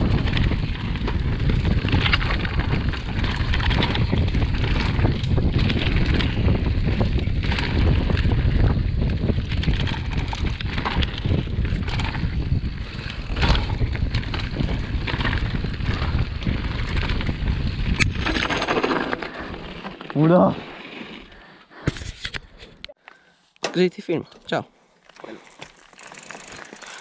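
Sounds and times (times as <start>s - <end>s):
wind buffeting microphone: 0.0s - 19.8s
bike knocking and rattling: 0.0s - 20.5s, 25.1s - 27.0s.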